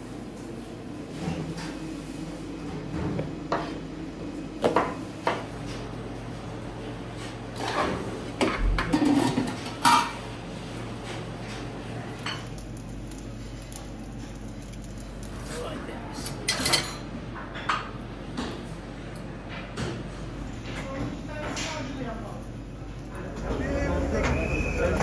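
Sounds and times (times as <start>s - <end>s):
dishes and utensils clinking: 8.4s - 10.2s, 16.4s - 17.9s.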